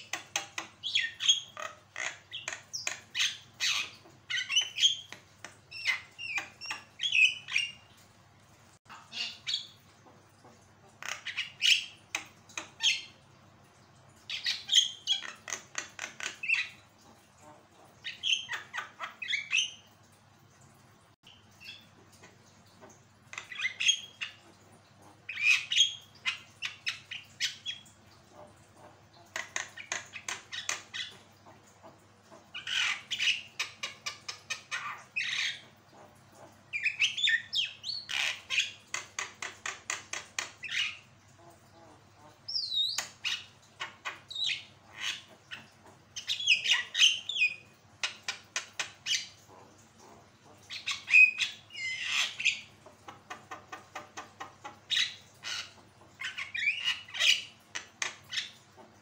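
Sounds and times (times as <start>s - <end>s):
bird squawking and clicking: 0.0s - 7.8s, 14.3s - 17.1s, 21.6s - 24.5s, 29.2s - 31.2s, 36.8s - 41.0s, 42.5s - 49.4s, 50.1s - 58.6s.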